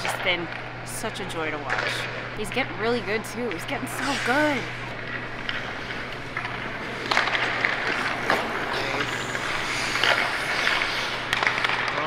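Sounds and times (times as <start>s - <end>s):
steady low hum: 0.0s - 12.0s
pucks clacking on sticks: 5.1s - 12.0s
skates scraping ice: 5.4s - 12.0s.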